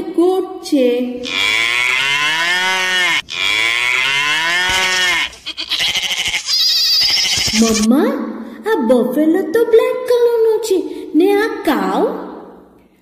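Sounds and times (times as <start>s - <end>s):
cattle mooing: 1.2s - 7.8s
goat bleating: 1.2s - 7.9s.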